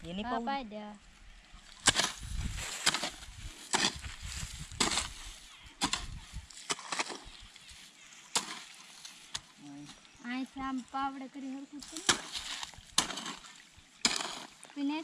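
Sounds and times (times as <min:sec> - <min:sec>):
spade cutting into soil: 0:01.8 - 0:05.2, 0:05.8 - 0:07.4, 0:12.0 - 0:14.6.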